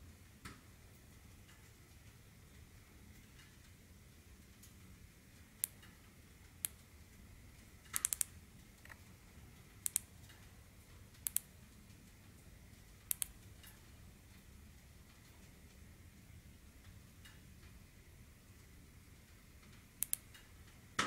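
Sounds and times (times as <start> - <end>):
flashlight switch clicking: 8.0 - 8.3, 9.8 - 10.1, 11.2 - 11.5, 13.1 - 13.3, 20.0 - 20.3.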